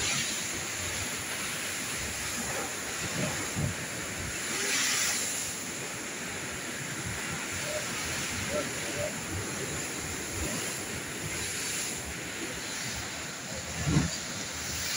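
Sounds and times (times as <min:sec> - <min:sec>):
heavy surf breaking on rocks: 0:00.0 - 0:14.9.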